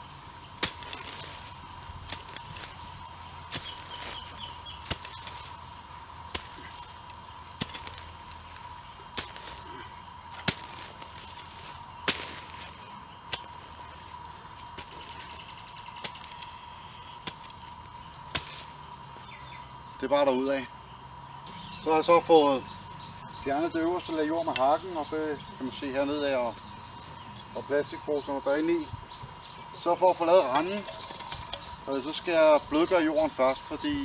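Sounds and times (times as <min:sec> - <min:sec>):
hoe chopping dry ground: 0:00.0 - 0:18.8.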